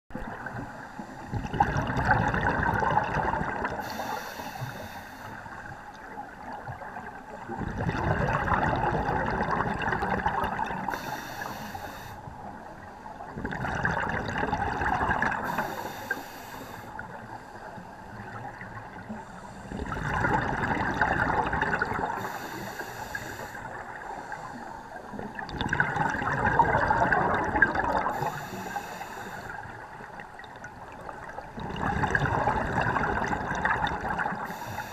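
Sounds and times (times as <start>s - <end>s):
exhaled bubbles rushing: 1.3s - 3.8s, 6.3s - 10.9s, 13.2s - 15.6s, 19.7s - 22.3s, 25.1s - 28.3s, 29.8s - 34.5s
regulator inhale hiss: 3.8s - 5.7s, 10.8s - 12.3s, 15.4s - 17.9s, 22.2s - 25.2s, 28.1s - 29.8s, 34.4s - 34.9s.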